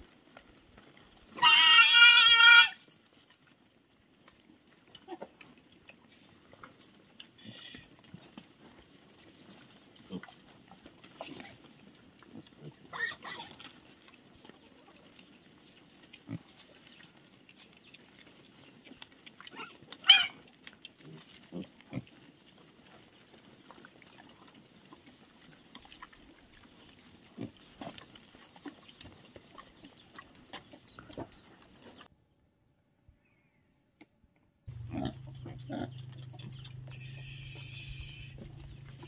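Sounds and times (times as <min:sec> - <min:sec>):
pigs grunting and snuffling: 0:00.0 - 0:32.1, 0:34.7 - 0:39.0
pig squealing: 0:01.3 - 0:02.8, 0:07.4 - 0:07.9, 0:12.4 - 0:13.7, 0:19.4 - 0:21.7, 0:34.7 - 0:39.0.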